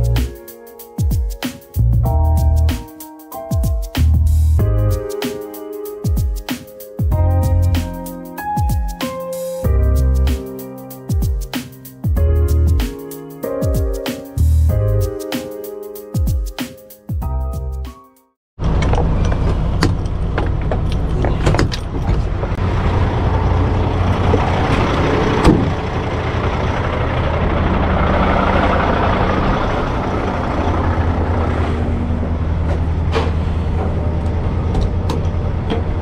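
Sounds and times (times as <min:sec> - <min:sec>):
truck engine running: 0:18.6 - 0:36.0.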